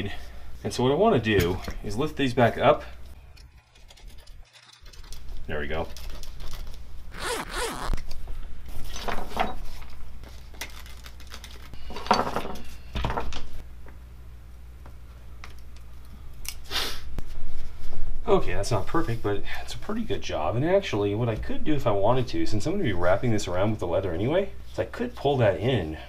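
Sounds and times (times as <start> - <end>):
fabric rasping as pulled and cut: 7.1 - 8.0.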